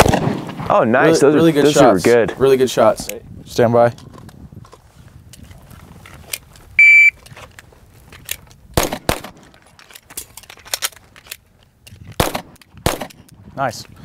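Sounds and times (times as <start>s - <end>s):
pistol shots: 0.0s - 0.7s, 8.8s - 9.4s, 12.2s - 13.2s
shot timer beep: 6.8s - 7.2s
magazine clicks: 7.2s - 13.4s.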